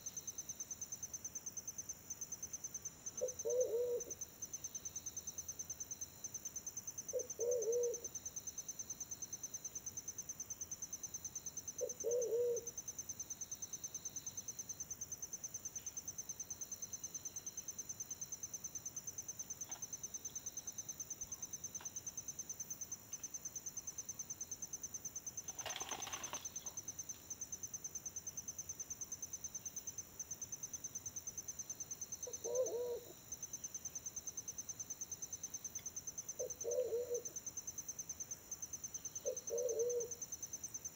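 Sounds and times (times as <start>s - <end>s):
pigeon cooing: 3.2s - 4.1s, 7.2s - 8.0s, 11.8s - 12.7s, 32.3s - 33.1s, 36.4s - 37.3s, 39.3s - 40.1s
high-pitched insect trill: 3.2s - 40.9s.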